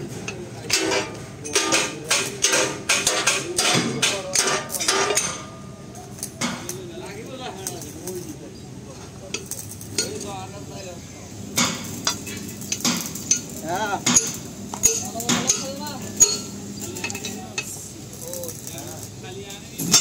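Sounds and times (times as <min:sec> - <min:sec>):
steel parts clinking and knocking: 0:00.2 - 0:05.6, 0:11.6 - 0:18.7.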